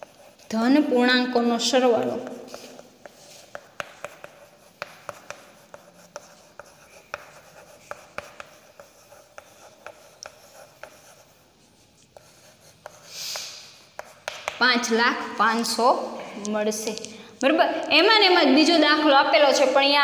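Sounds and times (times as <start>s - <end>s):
chalk tapping and scratching: 0.0s - 15.8s.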